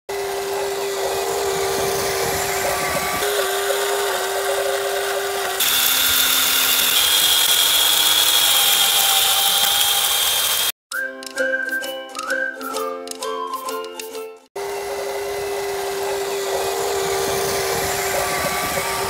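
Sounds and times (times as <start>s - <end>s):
small electric motors whining: 0.1s - 10.8s, 14.6s - 19.0s.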